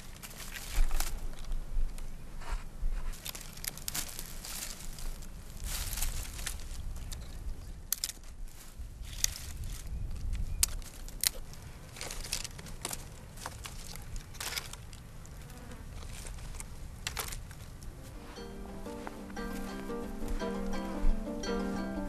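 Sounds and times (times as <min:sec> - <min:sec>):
dry branches snapping: 0:00.0 - 0:01.6, 0:03.1 - 0:15.1, 0:16.1 - 0:17.6
crackling rustles: 0:00.0 - 0:22.0.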